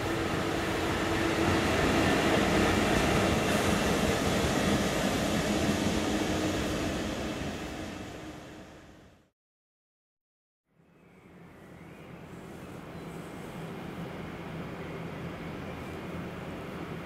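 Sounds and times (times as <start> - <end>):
train wheels rumbling: 0.0 - 9.0
diesel locomotive engine drone: 0.0 - 9.3, 11.2 - 17.0.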